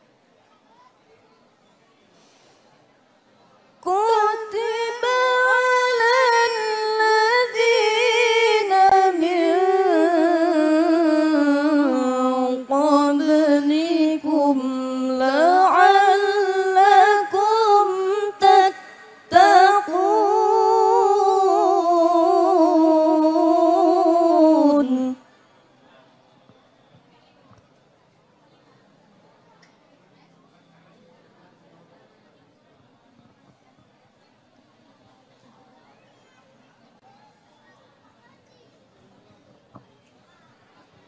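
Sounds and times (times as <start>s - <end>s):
woman reciting through microphone: 3.8s - 25.5s.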